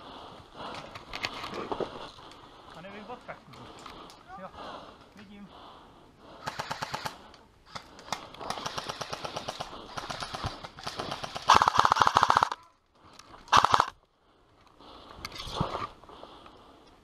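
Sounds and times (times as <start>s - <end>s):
airsoft rifle automatic bursts: 6.4s - 7.8s, 8.4s - 12.6s, 13.5s - 14.0s.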